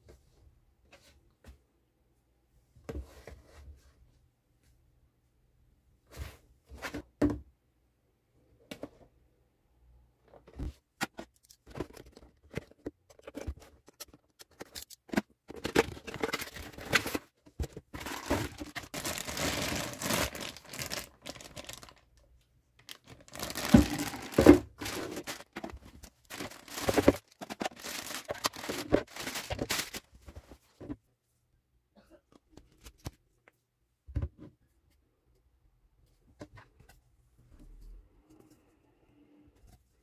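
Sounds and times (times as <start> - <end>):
plastic bags crinkling and tearing: 17.9 - 22.1, 22.8 - 30.1.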